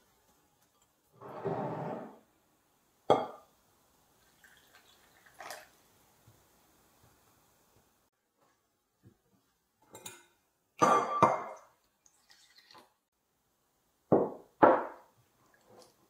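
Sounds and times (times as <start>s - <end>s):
glass bowl clinking: 3.1s - 3.5s, 9.9s - 11.7s.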